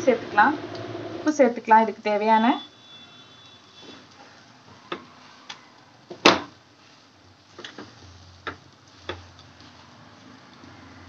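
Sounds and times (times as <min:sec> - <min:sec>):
wooden spatula tapping a pan: 0:04.8 - 0:06.6, 0:07.6 - 0:09.3.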